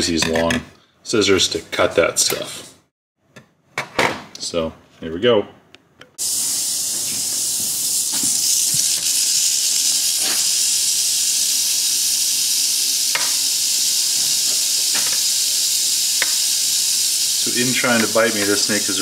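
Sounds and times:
rattlesnake rattling: 0:06.2 - 0:19.0.

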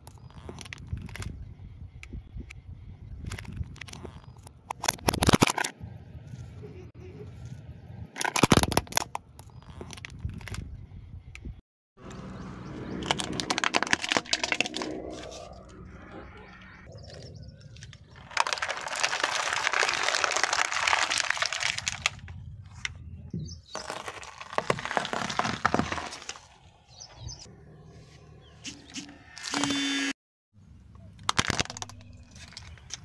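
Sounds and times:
plastic bottle crackling flattened: 0:13.0 - 0:15.0, 0:17.8 - 0:22.4, 0:23.7 - 0:26.6, 0:31.2 - 0:33.0
tyre crushing plastic toys: 0:13.0 - 0:15.0, 0:17.8 - 0:22.9, 0:23.7 - 0:26.7, 0:31.2 - 0:33.0.

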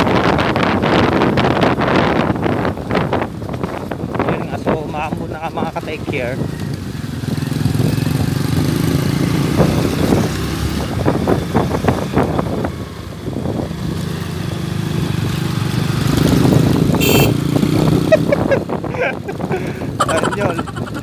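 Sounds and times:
small motorcycle engine running: 0:06.2 - 0:09.9.

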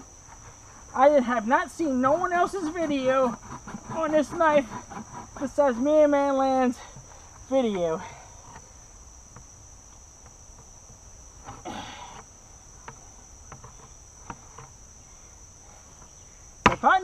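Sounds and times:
crickets droning: 0:00.0 - 0:17.0
knife scraping plastic bucket: 0:02.1 - 0:06.0.

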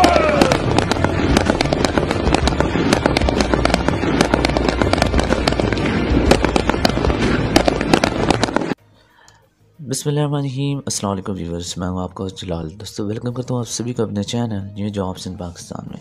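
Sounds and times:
rapid rifle fire: 0:00.0 - 0:08.8.

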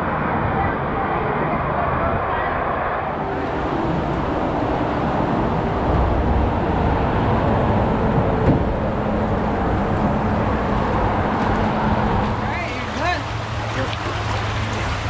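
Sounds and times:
low rumble: 0:00.1 - 0:12.5
water rushing into tub: 0:12.7 - 0:15.0.

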